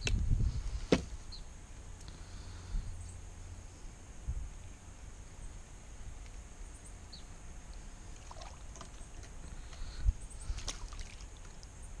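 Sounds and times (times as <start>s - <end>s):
paddle water splashes and drips: 8.1s - 9.8s, 10.4s - 11.8s.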